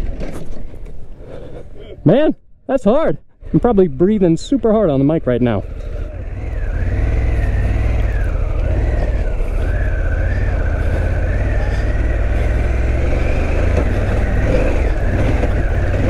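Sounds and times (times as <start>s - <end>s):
motorcycle engine under load: 4.5s - 16.0s.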